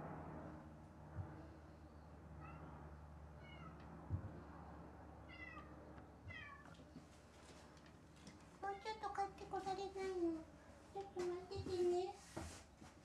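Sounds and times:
cat meowing: 2.4 - 2.6, 3.4 - 3.8, 5.2 - 6.8.

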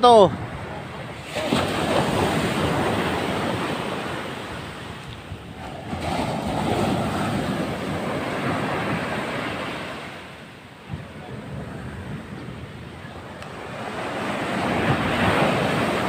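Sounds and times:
sea surf breaking: 0.0 - 16.0
wind on microphone: 0.0 - 16.0.

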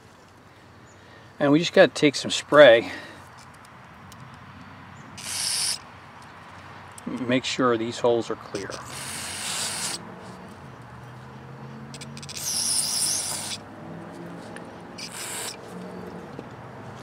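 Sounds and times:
aerosol spray hissing: 12.3 - 13.6.

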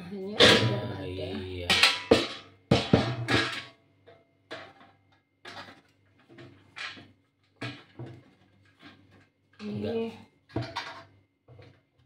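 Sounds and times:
metal parts knocking and clattering: 1.7 - 8.3, 10.5 - 11.7.

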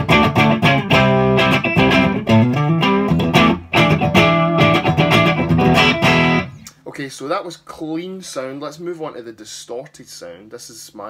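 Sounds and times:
clean electric guitar: 0.0 - 6.8.

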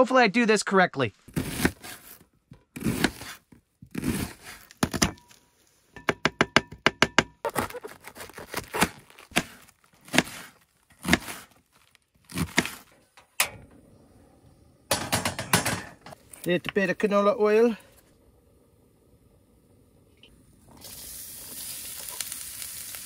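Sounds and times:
knife cutting on wooden board: 1.3 - 2.2, 2.8 - 5.0, 7.5 - 11.6, 12.3 - 12.9.

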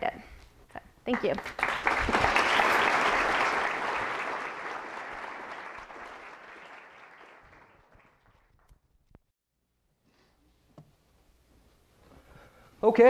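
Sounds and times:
audience applauding: 1.2 - 8.8.

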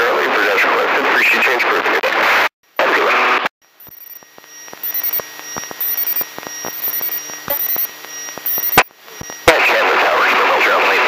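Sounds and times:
electronic chirping: 3.7 - 9.5
sharp clicks: 3.8 - 8.9
radio static: 3.8 - 11.0.

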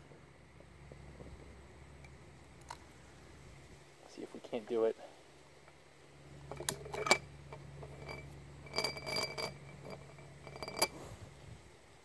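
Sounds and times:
ringing glass chinks: 6.5 - 7.2, 7.8 - 10.9
glass jar lid rattling: 6.5 - 11.0.

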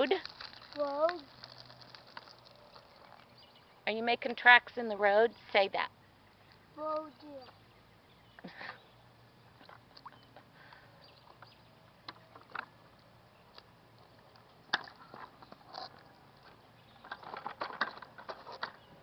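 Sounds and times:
plastic tricycle clicking and knocking: 12.1 - 12.8, 14.7 - 18.9.

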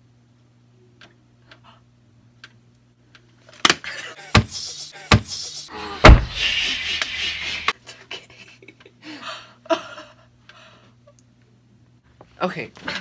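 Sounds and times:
loud breathy laughter: 3.8 - 10.3
sharp thumps: 6.0 - 6.6.

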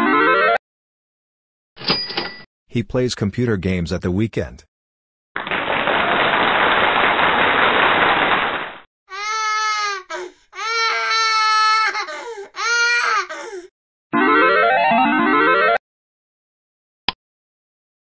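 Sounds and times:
wailing sobs: 9.1 - 13.7.

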